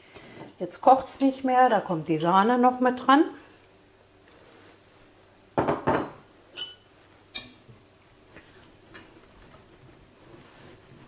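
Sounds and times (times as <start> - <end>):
utensils clinking on saucepan: 5.9 - 7.6.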